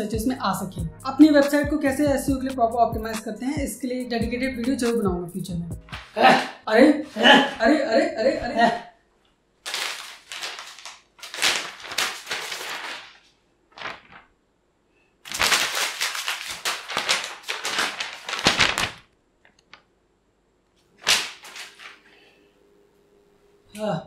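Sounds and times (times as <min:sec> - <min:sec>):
paper rustling and flapping: 0:05.9 - 0:06.2, 0:09.6 - 0:14.4, 0:15.2 - 0:19.9, 0:21.0 - 0:22.2
sharp crackle: 0:09.6 - 0:14.3, 0:15.2 - 0:19.8.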